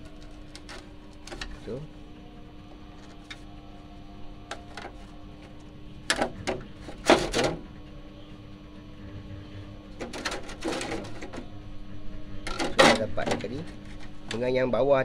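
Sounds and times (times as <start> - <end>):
steady low hum: 0.0 - 15.0
metal tools clattering: 12.5 - 14.1.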